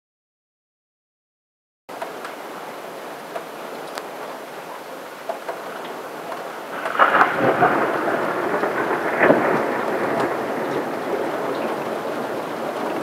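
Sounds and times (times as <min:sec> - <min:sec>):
steady rain: 0:01.9 - 0:13.0
thunder crackling and rumbling: 0:06.6 - 0:13.0.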